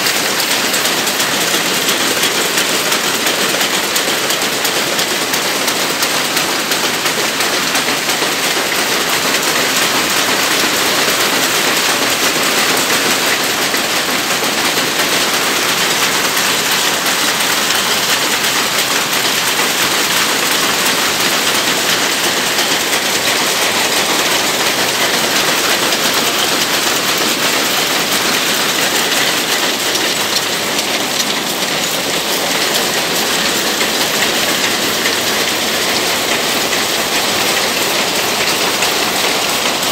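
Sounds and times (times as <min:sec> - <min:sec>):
looms clattering: 0:08.7 - 0:39.9.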